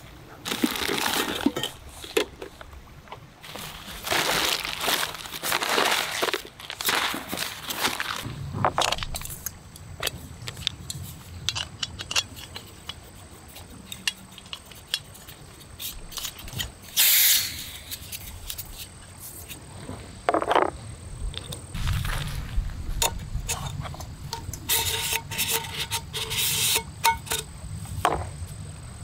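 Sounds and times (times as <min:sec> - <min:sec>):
camp stove parts clicking and clattering: 0:00.4 - 0:19.6, 0:20.3 - 0:22.2, 0:22.9 - 0:28.4
gas hiss: 0:16.9 - 0:18.0.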